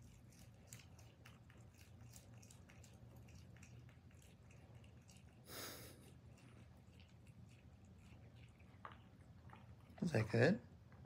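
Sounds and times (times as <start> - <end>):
prairie dog chewing clicks: 0.0 - 5.4.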